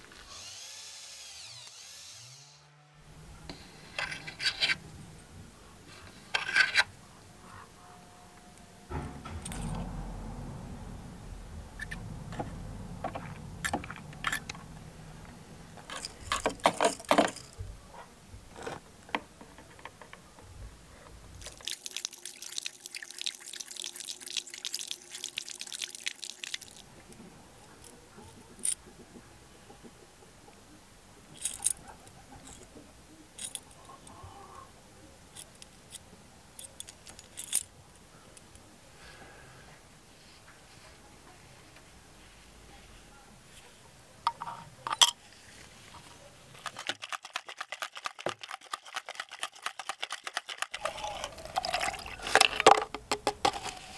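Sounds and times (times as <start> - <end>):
liquid crackling: 21.4 - 27.1, 46.6 - 53.9.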